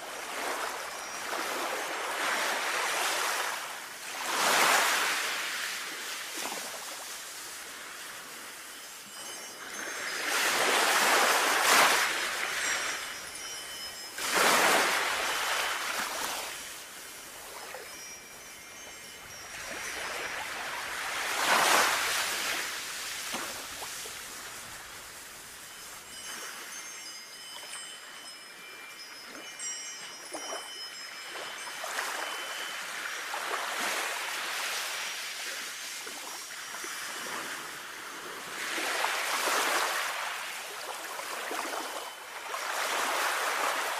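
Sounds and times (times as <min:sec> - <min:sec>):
wind chimes ringing: 0:00.0 - 0:05.8, 0:07.0 - 0:38.4, 0:39.9 - 0:43.9
sea waves washing: 0:00.0 - 0:27.1.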